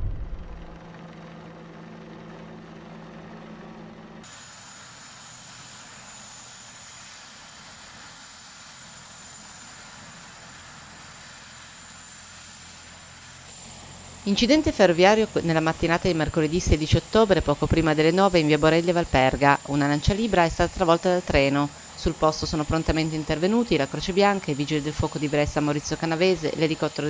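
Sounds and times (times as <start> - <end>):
low engine hum: 0.0 - 4.3, 13.3 - 27.0
low mechanical hum: 0.0 - 27.0
thin high whine: 13.5 - 27.0.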